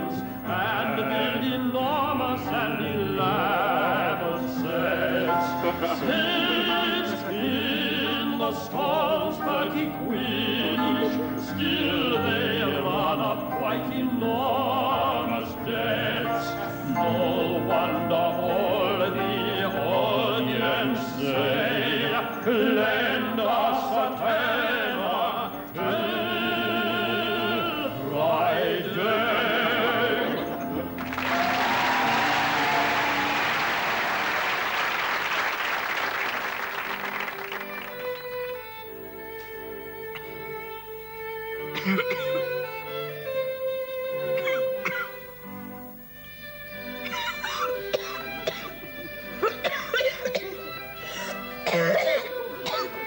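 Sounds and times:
man singing opera: 0.0 - 33.0
classical musical accompaniment: 0.0 - 53.0.

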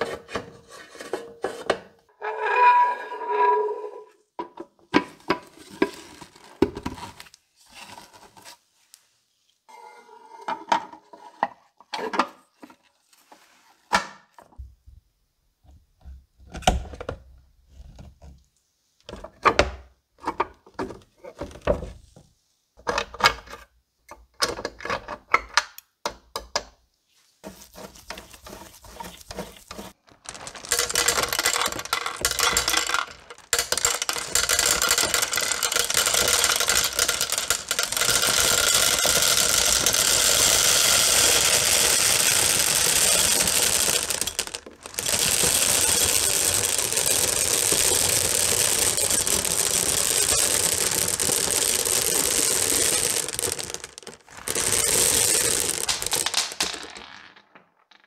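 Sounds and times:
plastic bag crinkling: 27.7 - 57.6
gumballs pouring into plastic container: 27.8 - 57.9.

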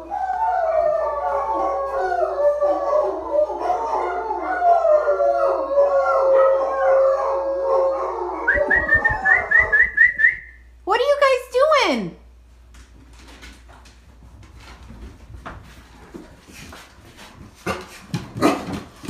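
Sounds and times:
dogs howling: 0.0 - 9.9
short rising whistles: 8.5 - 10.7.

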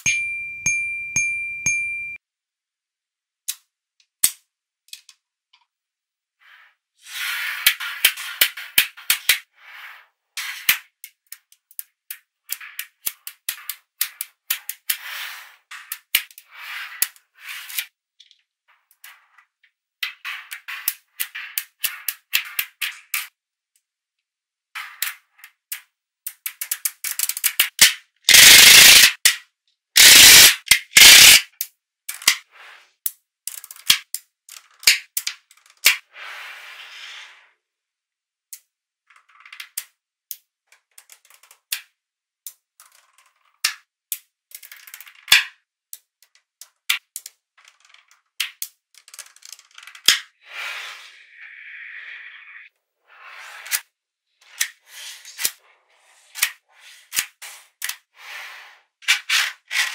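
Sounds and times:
magnetic balls clicking together: 25.7 - 29.4, 30.0 - 32.4, 33.1 - 35.9.

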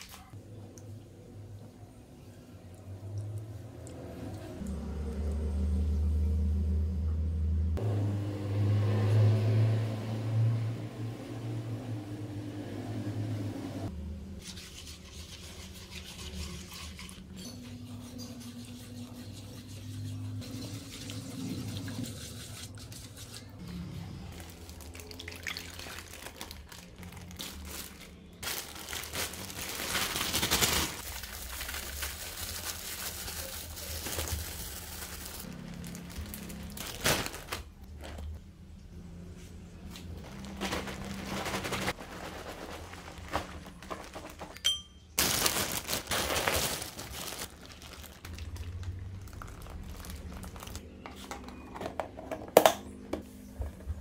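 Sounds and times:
liquid pouring into bag: 24.4 - 38.2, 45.2 - 50.8
plastic bag crinkling: 24.4 - 38.4, 40.1 - 44.6, 45.2 - 50.8.

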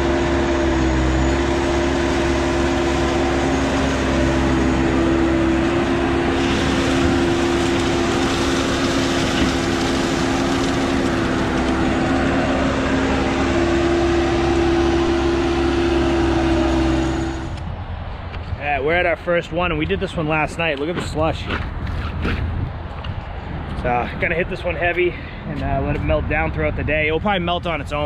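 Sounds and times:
truck engine drone: 0.0 - 28.0
rush of noise: 2.2 - 20.8.

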